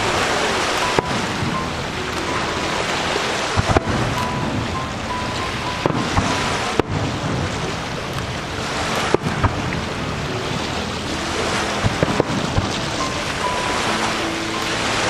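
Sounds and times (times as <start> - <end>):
steady rushing noise: 0.0 - 15.0
fireworks bangs and pops: 3.6 - 4.8, 5.4 - 8.3, 8.9 - 9.8, 11.8 - 13.2.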